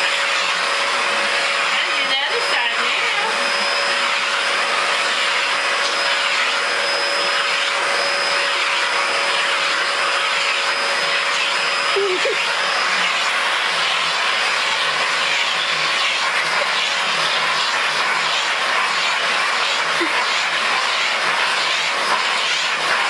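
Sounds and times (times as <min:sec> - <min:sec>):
vacuum cleaner running: 0:00.0 - 0:23.0.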